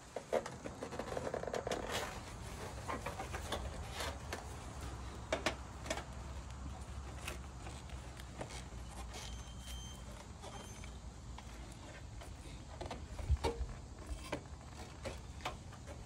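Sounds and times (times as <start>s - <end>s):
clicks and scrapes on metal gutter: 0.0s - 6.3s.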